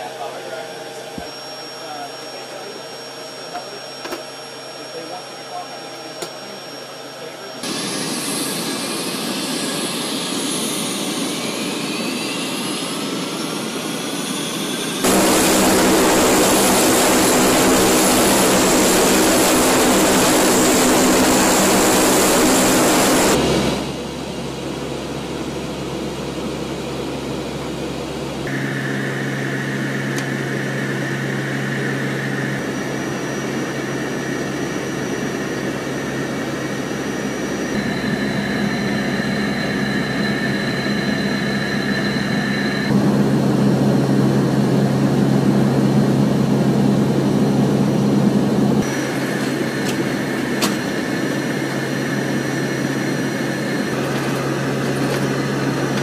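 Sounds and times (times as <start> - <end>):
turbine whine: 0.0 - 56.0
turboprop engines and propellers: 0.0 - 56.0.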